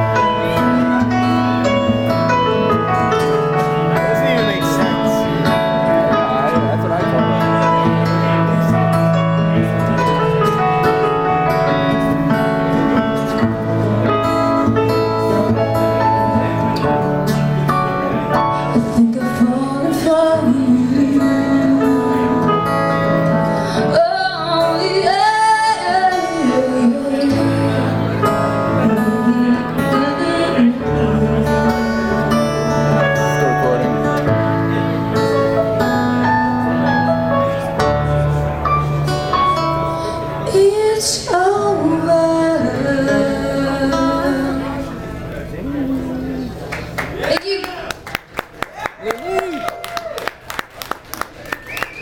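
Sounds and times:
keyboard chords: 0.0s - 47.1s
acoustic guitar: 0.0s - 48.6s, 50.4s - 52.0s
person singing: 23.8s - 33.0s.

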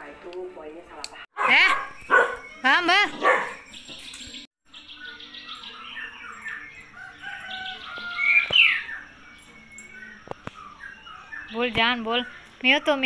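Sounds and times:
small birds chirping: 1.4s - 13.0s.

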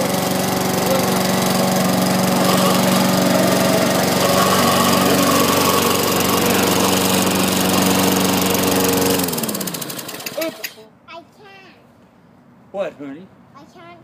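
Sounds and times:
lawn mower engine running: 0.0s - 10.8s.

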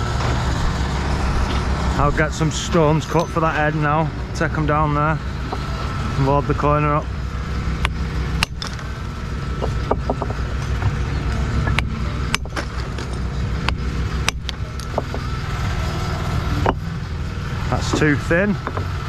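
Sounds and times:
low engine rumble: 0.0s - 19.0s
stone knocks: 9.6s - 11.0s, 11.6s - 15.2s.

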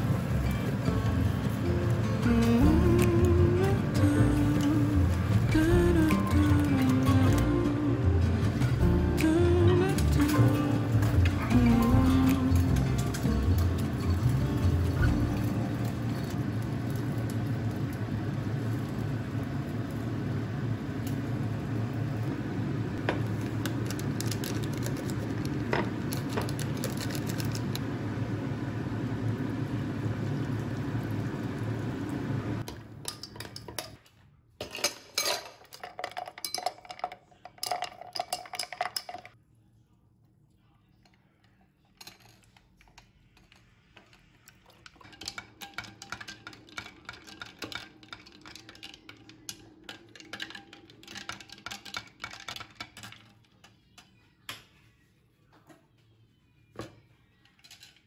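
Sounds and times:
low hum and hiss: 0.0s - 52.5s
metal spoon clinking in glass: 34.6s - 39.4s.

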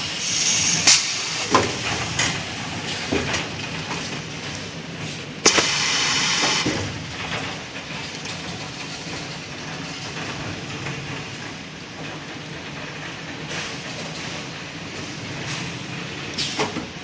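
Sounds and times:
machine hiss: 0.0s - 1.9s, 5.4s - 6.8s
packing machine running: 0.0s - 17.0s.

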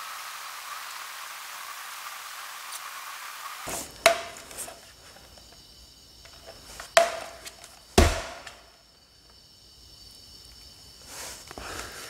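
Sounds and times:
sharp knocks: 3.7s - 4.7s, 7.0s - 8.7s.

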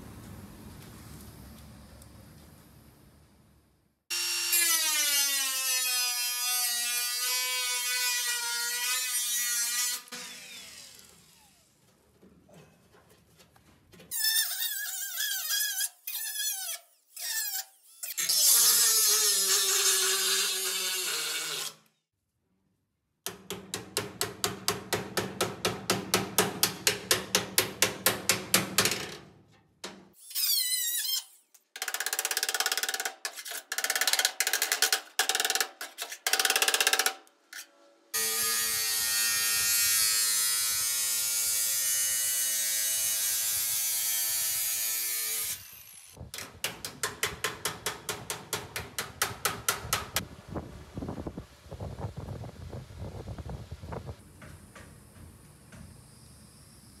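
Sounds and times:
hammer striking metal panel: 23.3s - 29.2s, 46.4s - 50.2s.

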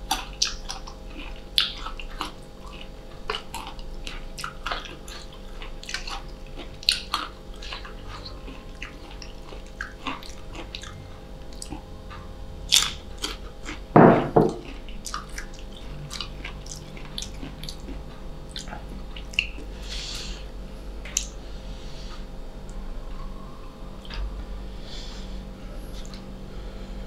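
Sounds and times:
crunching bite of mango: 12.7s - 13.8s
wet mouth clicks and smacks: 21.1s - 21.4s.

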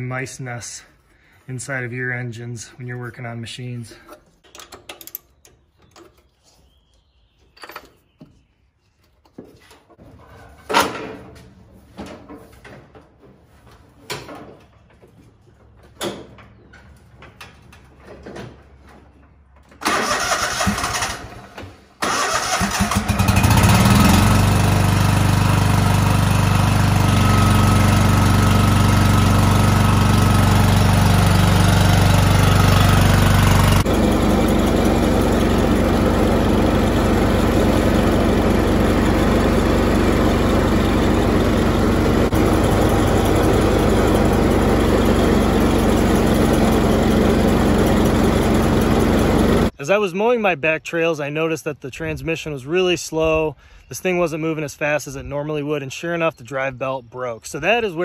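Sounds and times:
lawn tractor engine running: 19.7s - 49.8s
electric starter cranking engine: 19.8s - 49.7s.

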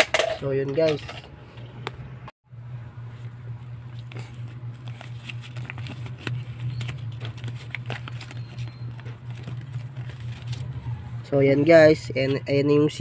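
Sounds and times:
steady low hum: 0.0s - 13.0s
cardboard pack crackling: 3.9s - 10.8s.

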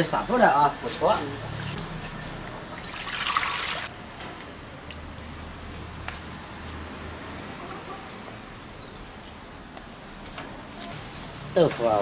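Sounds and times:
water splashing into steel bowl: 2.8s - 3.9s.

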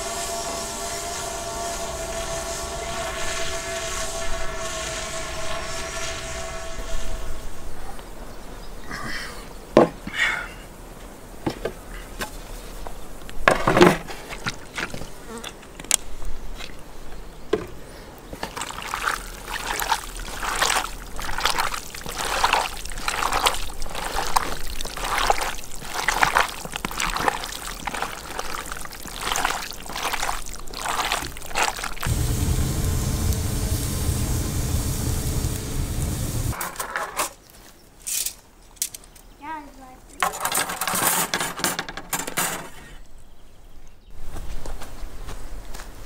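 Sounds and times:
hands squelching raw meat: 18.5s - 32.1s.

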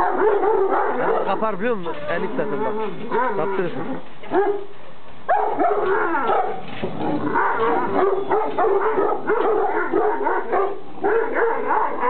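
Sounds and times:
dogs barking: 0.0s - 4.7s, 5.3s - 12.0s
dogs yelping and whining: 5.4s - 12.0s.

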